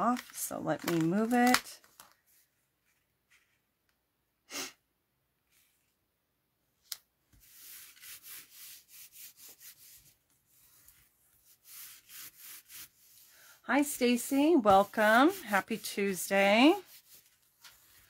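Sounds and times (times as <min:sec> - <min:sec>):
paper rubbing strokes: 0:07.3 - 0:18.0.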